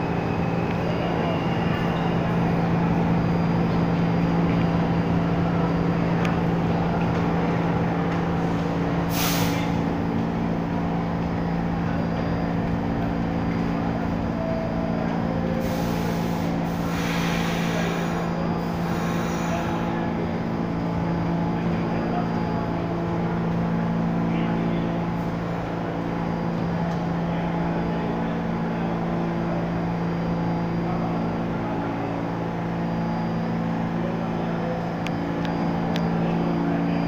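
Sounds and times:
train equipment humming: 0.0s - 37.0s
short hisses: 9.1s - 9.8s.

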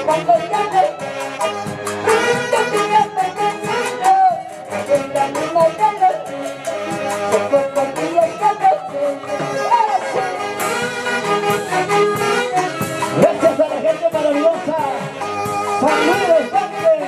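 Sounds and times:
live band playing folk music: 0.0s - 17.0s.

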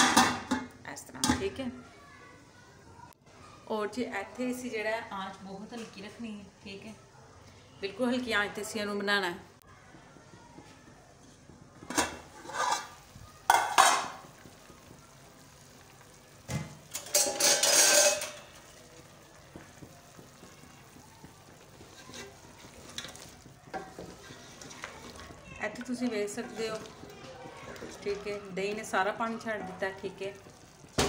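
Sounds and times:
food simmering in a pot: 9.6s - 31.0s
pot lid clattering: 11.9s - 14.2s, 16.8s - 18.4s
pot lid scraping: 11.9s - 14.2s, 16.9s - 18.4s
wooden spoon knocking a pot: 13.4s - 15.3s, 19.4s - 31.0s.

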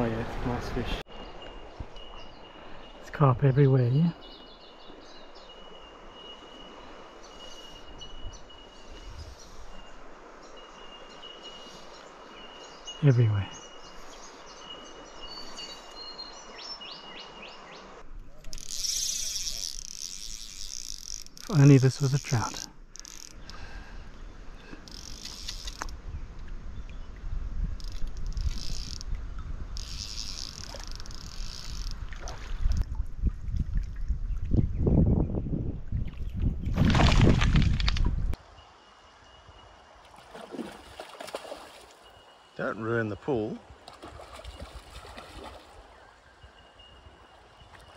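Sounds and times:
insects buzzing: 4.0s - 26.0s, 27.7s - 32.8s
wind noise on microphone: 7.9s - 9.8s, 25.2s - 38.4s
low microphone bumps: 32.8s - 38.4s.

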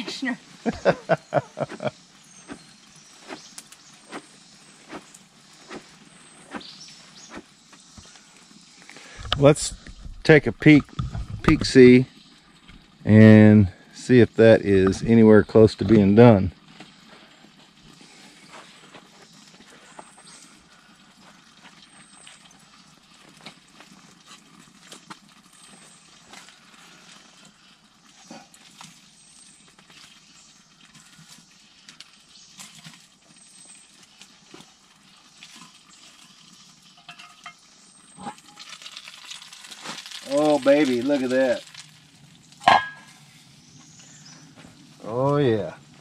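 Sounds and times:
metal tool scraping cast iron pot: 42.6s - 43.2s.

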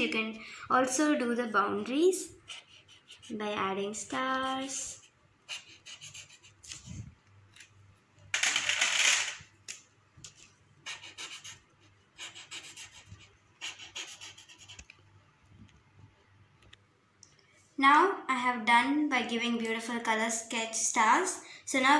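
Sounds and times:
felt-tip pen scratching on paper: 2.4s - 3.6s, 4.2s - 7.1s, 10.8s - 14.9s.

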